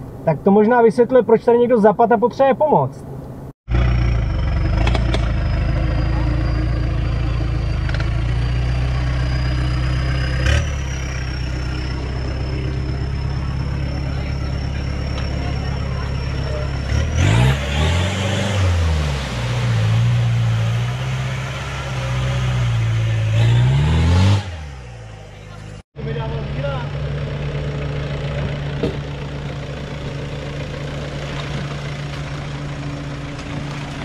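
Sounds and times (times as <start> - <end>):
suv engine revving: 3.7 - 34.0.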